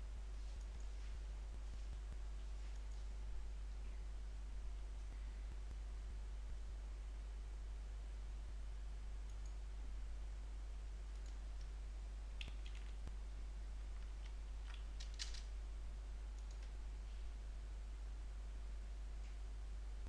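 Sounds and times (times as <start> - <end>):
low electrical hum: 0.0 - 20.0
computer mouse clicks: 9.3 - 9.6, 12.4 - 13.0, 16.4 - 16.7.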